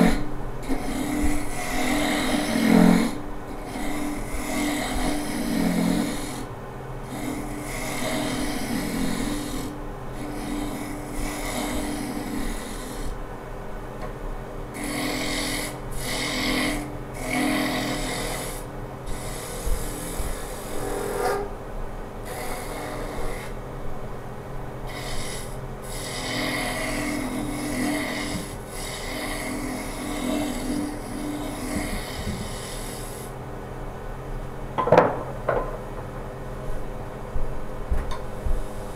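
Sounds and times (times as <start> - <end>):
turning tool cutting wood: 0.0 - 13.2, 14.8 - 21.5, 22.3 - 23.6, 24.9 - 33.4
lathe humming: 0.0 - 13.4, 14.7 - 23.8, 24.6 - 33.4.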